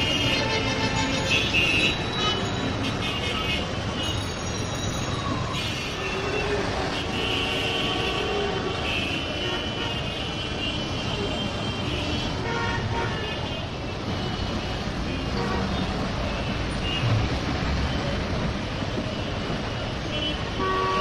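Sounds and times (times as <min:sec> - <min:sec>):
rumble of passing vehicles: 0:00.0 - 0:21.0
car horns tooting: 0:20.0 - 0:21.0.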